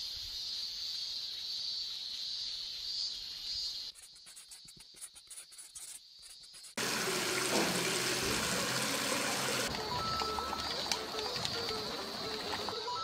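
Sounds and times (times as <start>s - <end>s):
tap water running into sink: 6.8s - 12.7s.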